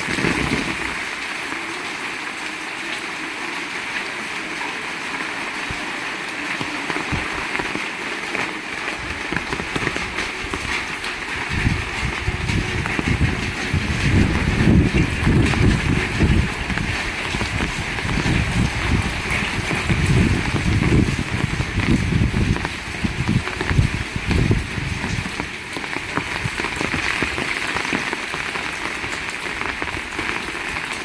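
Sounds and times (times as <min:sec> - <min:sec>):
heavy rain hissing: 0:00.0 - 0:31.0
gusty low rumble: 0:11.4 - 0:25.3.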